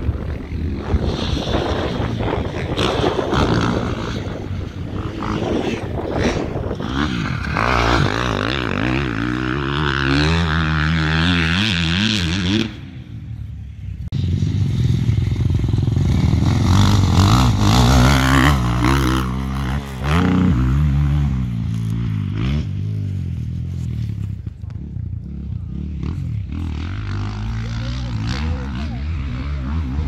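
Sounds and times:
motocross motorcycle engines revving: 0:00.0 - 0:30.0.

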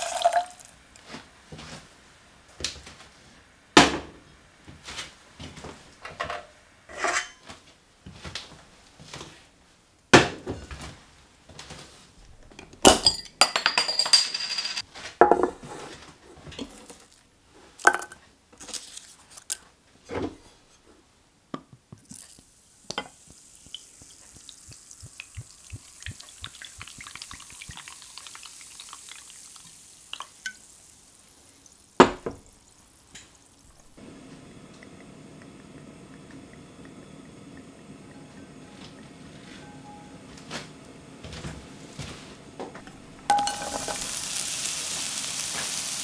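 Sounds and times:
cider fizzing: 0:00.0 - 0:01.1, 0:22.0 - 0:40.1, 0:42.9 - 0:46.0
cider pouring: 0:00.0 - 0:01.1, 0:22.0 - 0:40.4, 0:42.8 - 0:46.0.

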